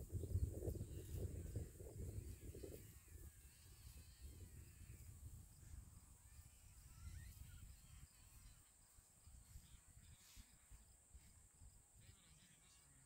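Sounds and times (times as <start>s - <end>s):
wind rumble on microphone: 0.0s - 8.6s
faint high-pitched hiss: 0.0s - 13.0s.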